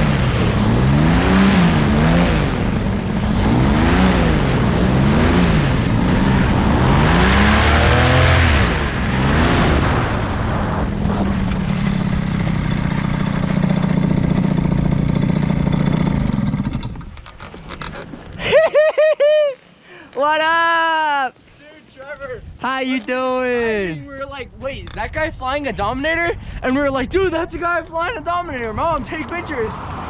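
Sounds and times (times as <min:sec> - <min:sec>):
wind rushing over microphone: 0:00.0 - 0:13.6, 0:24.1 - 0:30.0
paramotor engine running: 0:00.0 - 0:18.4.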